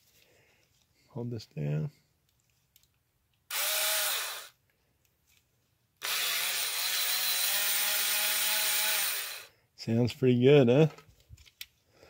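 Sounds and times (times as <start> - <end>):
small electric motor running: 3.5 - 4.5, 6.0 - 9.5.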